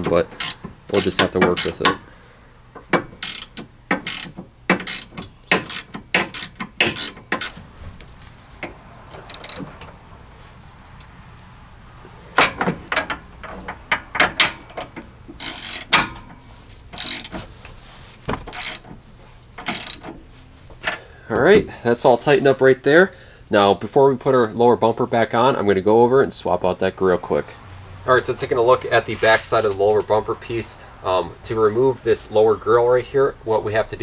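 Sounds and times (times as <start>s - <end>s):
socket ratchet clicking: 2.9s - 7.5s.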